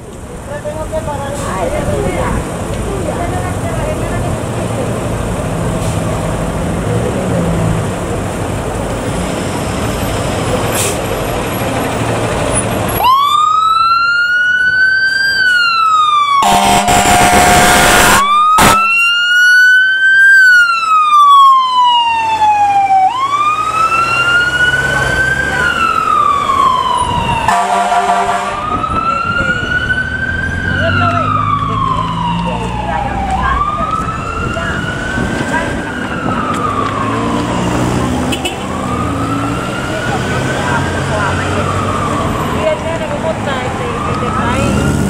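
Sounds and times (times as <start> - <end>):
fire engine running: 0.0 - 45.0
siren wailing: 12.9 - 45.0
horn blasts: 16.4 - 19.1, 27.5 - 28.6.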